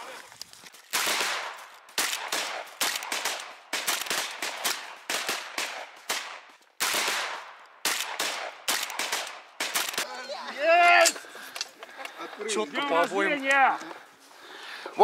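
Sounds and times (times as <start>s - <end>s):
shotguns firing: 0.9s - 10.1s.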